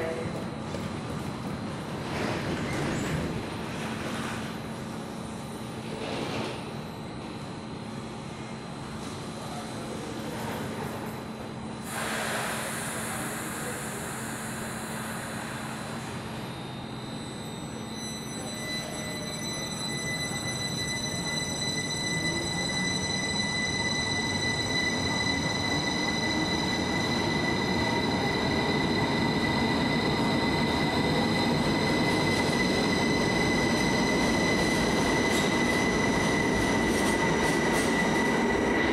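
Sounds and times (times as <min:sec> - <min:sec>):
high-pitched train squeal: 0:11.8 - 0:38.9.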